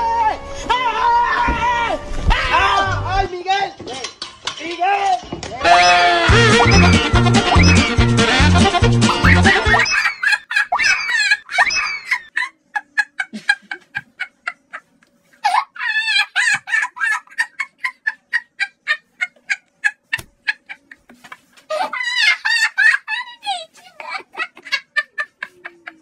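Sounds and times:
wavering poultry call: 0:05.6 - 0:12.4
poultry clucking: 0:09.1 - 0:22.8.

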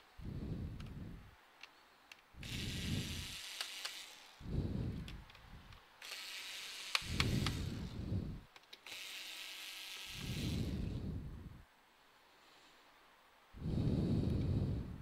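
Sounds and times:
small clicks: 0:01.6 - 0:04.3, 0:05.0 - 0:07.7
cordless screwdriver running: 0:02.4 - 0:04.4, 0:06.0 - 0:08.0, 0:08.9 - 0:11.0.

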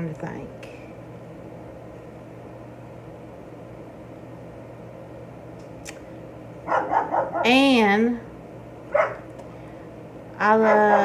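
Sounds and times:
low hum and hiss: 0:00.0 - 0:11.0.

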